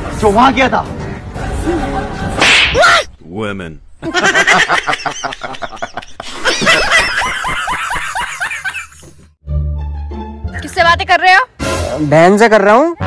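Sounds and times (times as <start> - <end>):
people laughing: 4.0 - 9.1.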